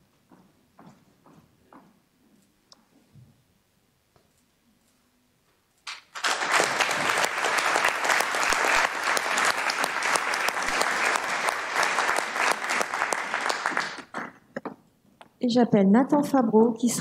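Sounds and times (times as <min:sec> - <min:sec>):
group of people clapping: 0:05.9 - 0:14.4.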